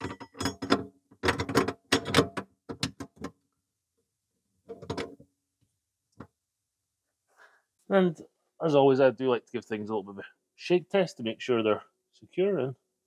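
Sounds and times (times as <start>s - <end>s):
plastic device clicks and clunks: 0.0s - 3.4s.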